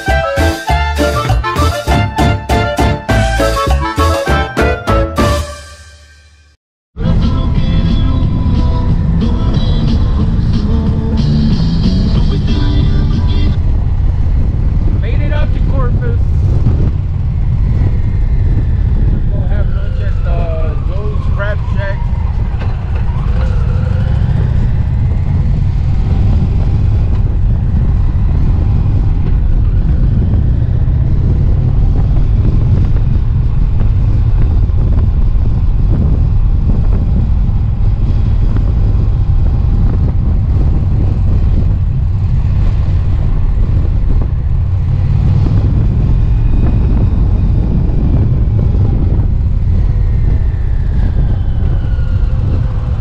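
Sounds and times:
wind rush on microphone: 7.0s - 53.0s
motorcycle engine running: 22.8s - 51.5s.

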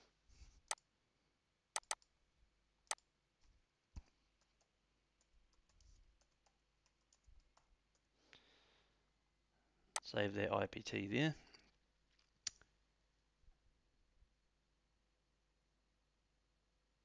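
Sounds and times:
computer mouse clicking: 1.8s - 2.1s, 4.4s - 8.1s
faint keyboard keystrokes: 4.0s - 8.1s.

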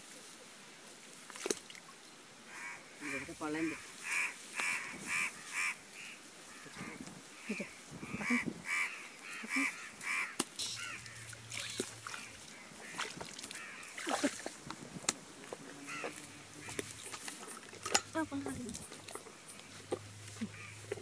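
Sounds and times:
short high animal calls: 2.5s - 14.0s, 15.8s - 16.9s.

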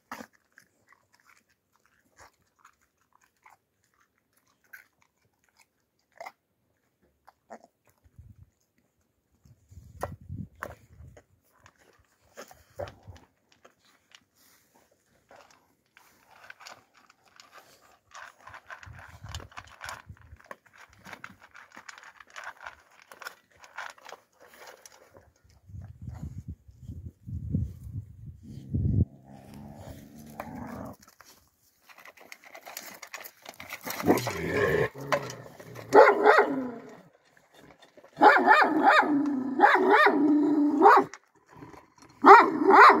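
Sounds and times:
puppy lapping and chewing: 0.0s - 26.6s.

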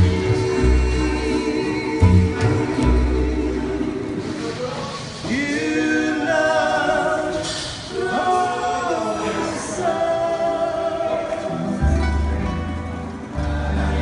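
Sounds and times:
men singing in close harmony: 0.0s - 4.4s, 5.2s - 11.8s, 13.3s - 14.0s
guitars and upright bass: 0.0s - 6.2s, 10.5s - 14.0s.

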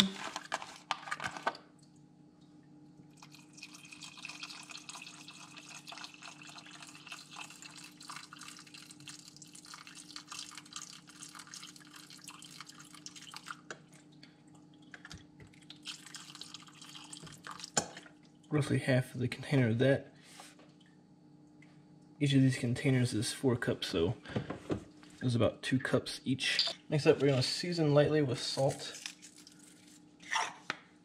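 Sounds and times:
liquid pouring into saucepan: 3.0s - 18.5s.

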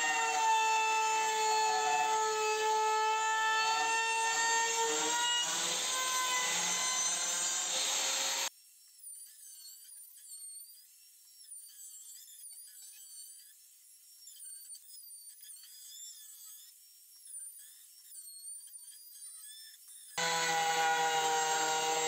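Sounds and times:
trim router whining: 0.0s - 8.5s, 20.2s - 22.0s.

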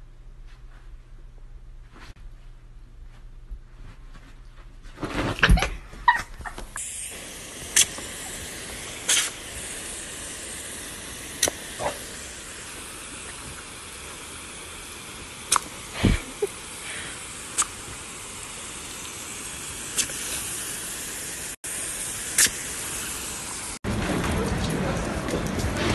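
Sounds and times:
hose spray nozzle hissing: 6.7s - 23.8s.

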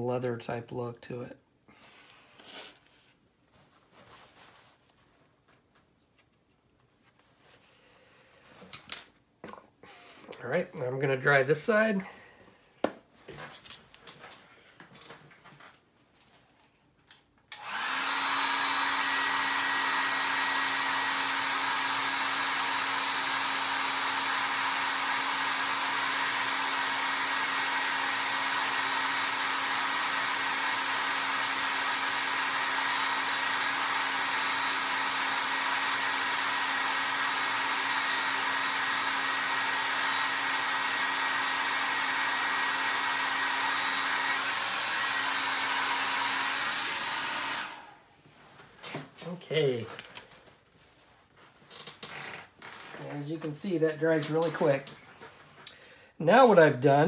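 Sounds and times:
hair dryer humming: 17.5s - 48.1s, 53.1s - 55.0s.

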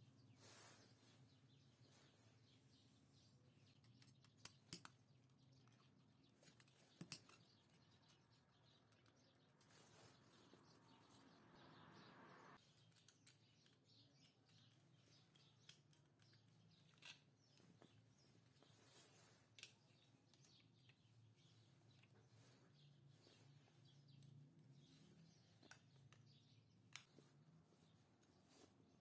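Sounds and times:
screwdriver clicks and taps: 3.8s - 5.0s.

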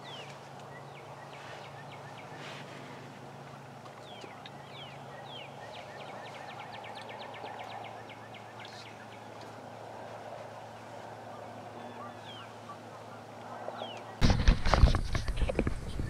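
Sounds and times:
small bird singing: 0.0s - 2.6s, 4.0s - 9.8s, 10.6s - 14.2s
outdoor background noise: 0.0s - 16.0s.

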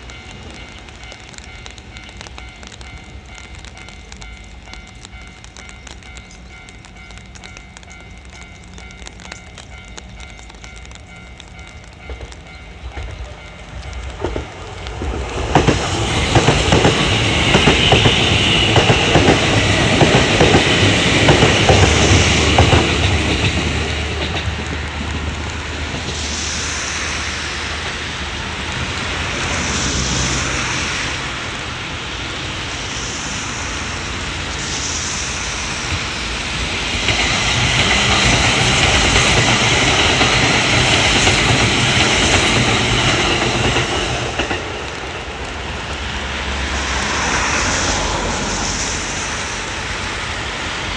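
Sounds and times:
crossing warning bells ringing: 0.0s - 26.2s
train wheels clattering over rails: 0.0s - 50.2s.

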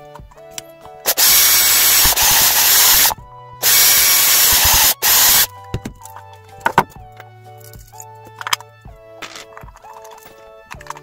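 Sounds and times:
background music: 0.0s - 11.0s
power tool running: 1.0s - 5.5s.

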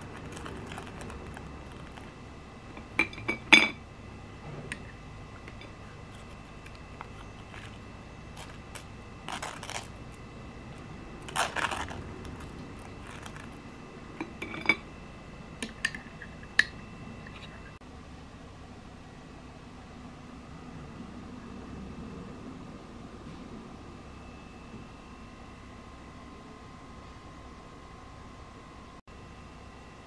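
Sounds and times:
spoon scraping jam on toast: 11.2s - 13.6s.

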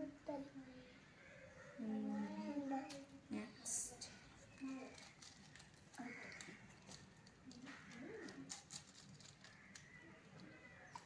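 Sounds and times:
soft low murmurs: 0.0s - 5.3s
small plastic pieces clicking: 4.6s - 11.0s.

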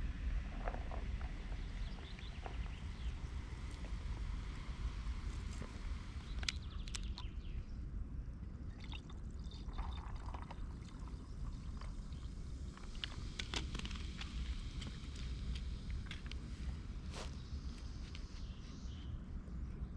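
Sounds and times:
water pouring into plastic jug: 8.7s - 16.2s.

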